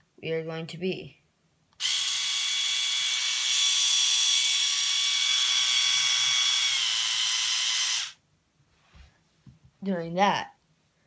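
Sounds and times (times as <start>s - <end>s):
small electric motor buzzing: 1.8s - 8.2s.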